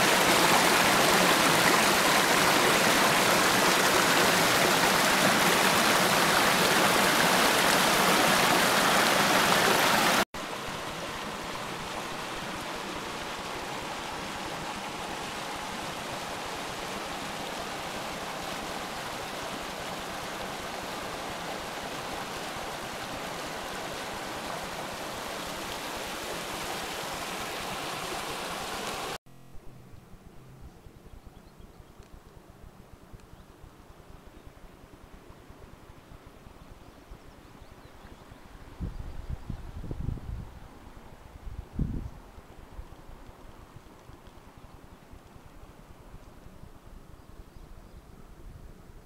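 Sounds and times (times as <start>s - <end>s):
stream rushing over rocks: 0.0s - 29.2s.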